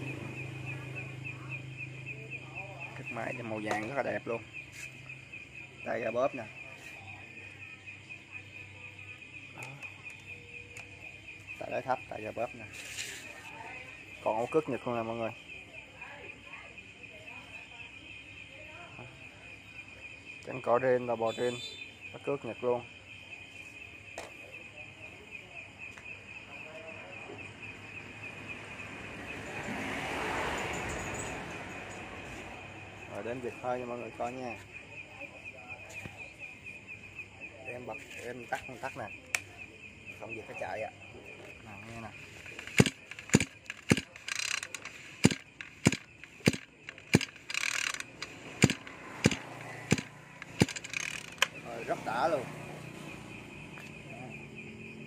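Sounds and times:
crickets chirping: 0.0s - 55.0s
starter rope whirring: 42.4s - 51.6s
recoil starter clicks: 42.5s - 51.6s.

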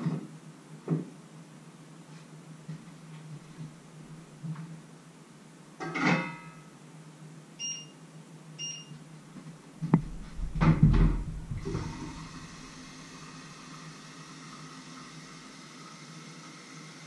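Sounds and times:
hob touch control beeps: 7.6s - 7.9s, 8.6s - 8.9s.

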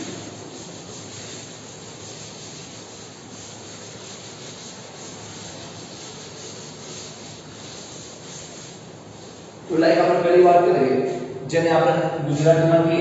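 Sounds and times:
cloth rubbing on blackboard: 0.0s - 9.7s.

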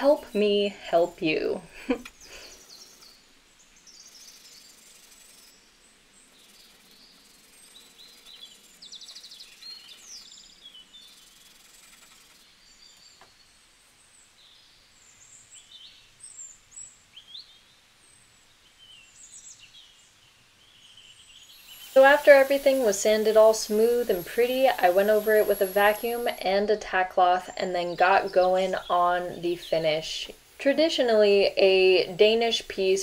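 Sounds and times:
birds chirping: 0.0s - 17.8s, 18.8s - 33.0s
wood scratching on sandpaper: 4.2s - 5.6s, 6.4s - 10.3s, 11.0s - 12.4s, 21.7s - 26.5s.

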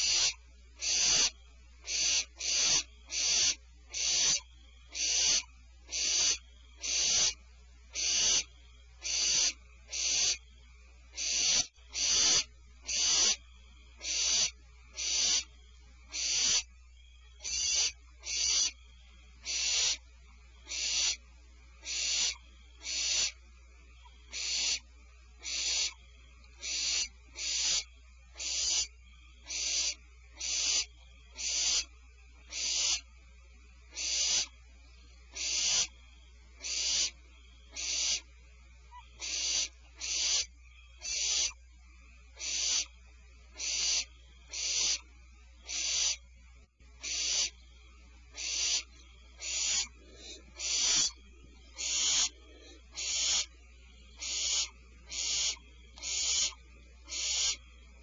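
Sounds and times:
owl hissing rasping calls: 0.0s - 58.0s.

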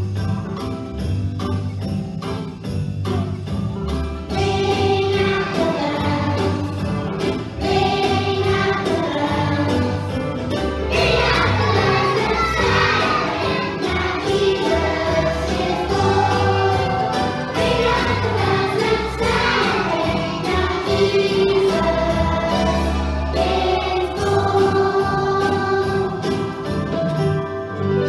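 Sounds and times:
children's choir singing: 4.3s - 26.8s.

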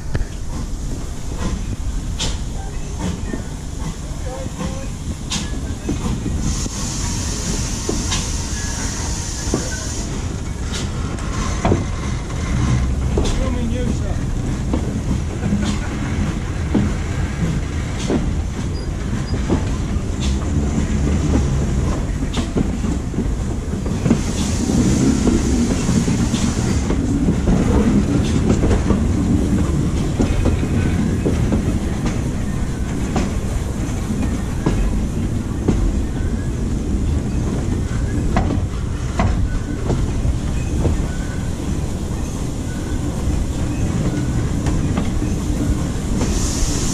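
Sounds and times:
train wheels rumbling: 0.0s - 46.9s
steam hiss: 0.5s - 12.8s, 23.9s - 35.9s, 38.8s - 46.9s
wheels clicking over rail joints: 10.4s - 42.3s.

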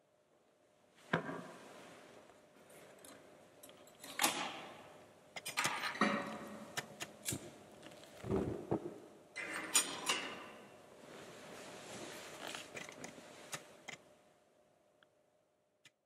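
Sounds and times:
fabric rustling: 10.9s - 13.8s.

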